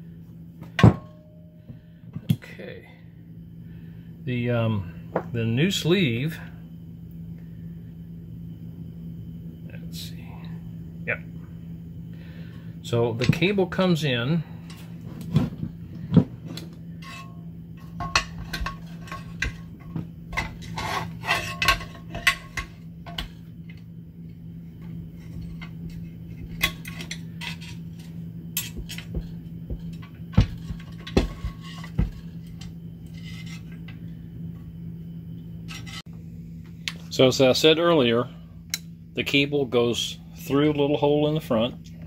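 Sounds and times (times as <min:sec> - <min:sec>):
low hum: 0:04.8 - 0:37.1.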